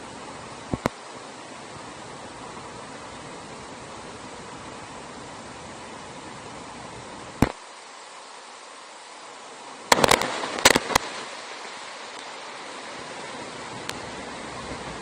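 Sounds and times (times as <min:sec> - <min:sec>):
stream rushing: 0:00.0 - 0:15.0
raindrops tapping camera housing: 0:00.7 - 0:01.0, 0:09.9 - 0:11.3.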